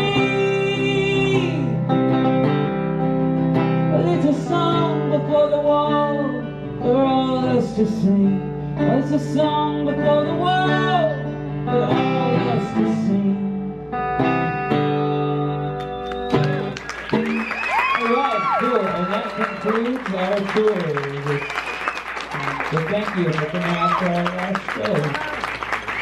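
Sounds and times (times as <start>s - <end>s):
man singing: 0.0s - 2.0s, 3.9s - 14.0s
acoustic guitar chords: 0.0s - 23.6s.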